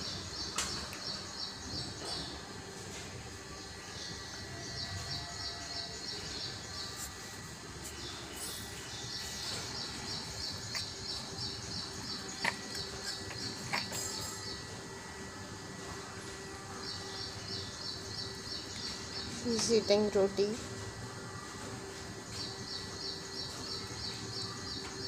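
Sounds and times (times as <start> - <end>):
outdoor background noise: 0.0 - 25.0
small bird chirping: 4.1 - 14.8.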